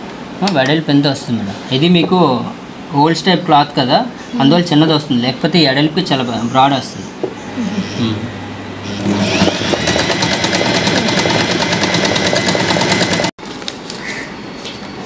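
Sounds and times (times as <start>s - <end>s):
sewing machine stitching: 8.8s - 13.3s.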